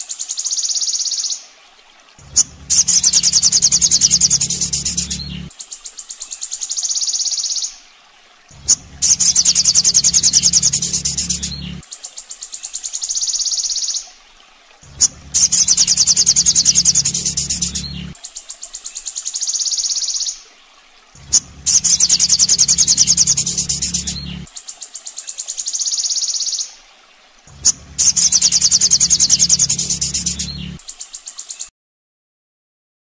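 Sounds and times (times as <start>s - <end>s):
low hum: 2.2s - 5.5s, 8.5s - 11.8s, 14.8s - 18.2s, 21.2s - 24.5s, 27.5s - 30.8s
bird trilling rapidly: 2.3s - 5.3s, 8.6s - 11.6s, 15.0s - 18.0s, 21.3s - 24.4s, 27.6s - 30.9s.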